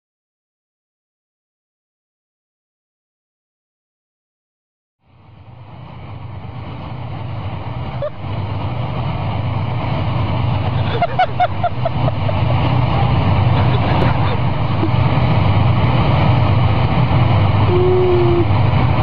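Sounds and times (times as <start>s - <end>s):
tank diesel engines droning: 5.1s - 19.0s.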